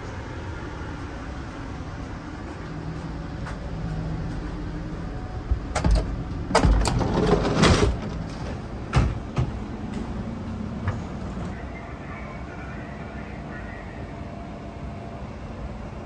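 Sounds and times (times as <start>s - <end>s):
low hum: 0.0s - 16.0s
door sliding open: 5.8s - 9.6s.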